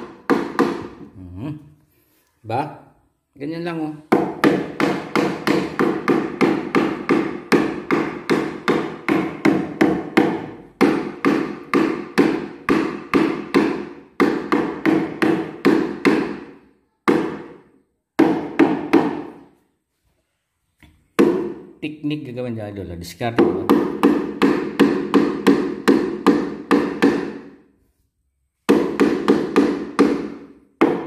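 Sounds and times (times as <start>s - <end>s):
hammer pounding on plywood: 0.0s - 1.1s, 4.1s - 19.5s, 21.2s - 21.7s, 23.4s - 27.6s, 28.7s - 31.0s.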